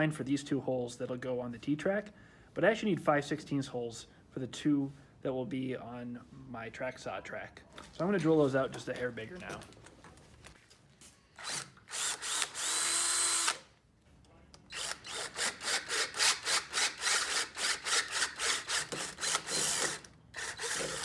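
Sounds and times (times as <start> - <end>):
drill stuttering through metal: 11.4 - 13.6, 14.7 - 21.0
power drill whining: 11.4 - 13.7, 14.7 - 21.0.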